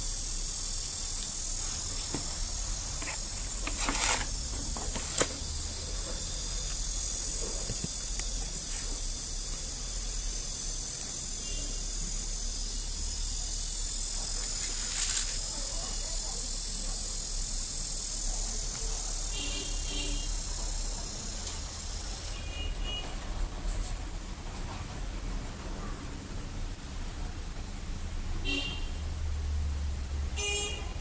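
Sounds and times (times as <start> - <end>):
insects chirring: 0.0 - 23.5.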